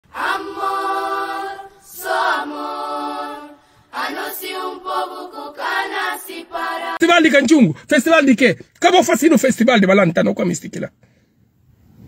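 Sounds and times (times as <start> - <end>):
choir singing a cappella: 0.0 - 7.0.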